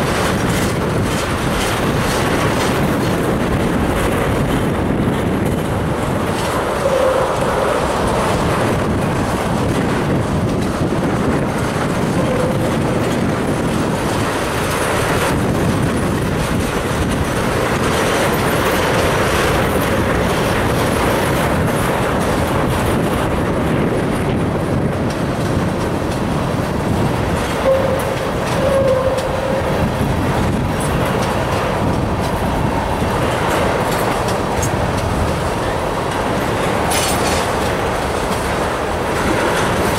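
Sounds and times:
train wheels clacking on rails: 0.0s - 39.9s
wheel squeals: 27.6s - 29.8s.

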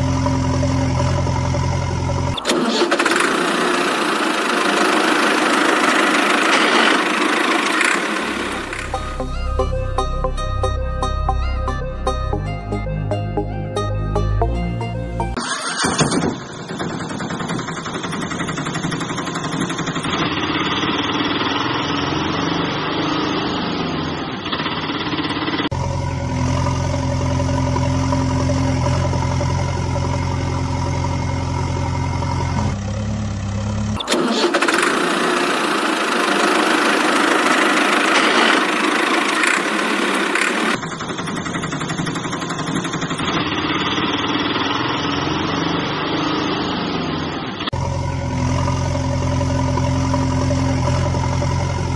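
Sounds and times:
small engine running: 0.0s - 9.4s, 15.3s - 51.9s
deep engine idle: 25.7s - 34.0s, 47.7s - 51.9s.

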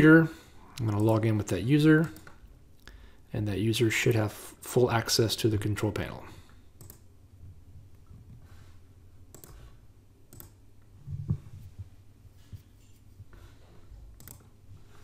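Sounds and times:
quiet room hum: 0.0s - 15.0s
computer mouse clicks: 6.8s - 7.1s, 9.3s - 9.7s, 10.3s - 10.6s, 14.2s - 14.5s.

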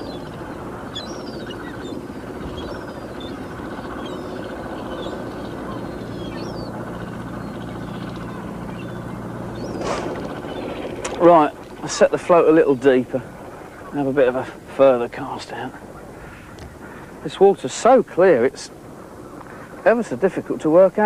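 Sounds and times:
motor droning: 0.0s - 14.6s
birds chirping: 0.0s - 21.0s.

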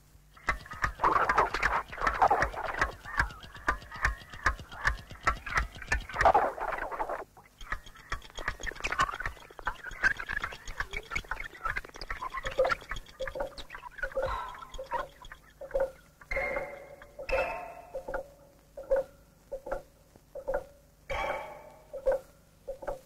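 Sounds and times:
rapid clicks and ticks: 0.2s - 17.4s.

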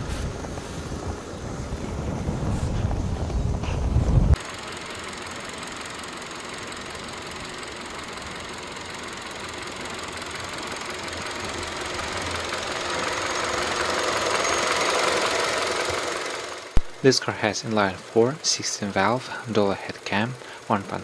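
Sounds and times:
car engine idling: 4.4s - 21.0s.

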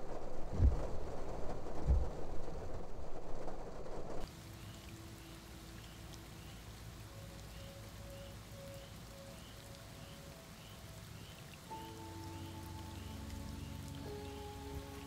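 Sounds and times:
rain pattering: 0.0s - 15.0s.

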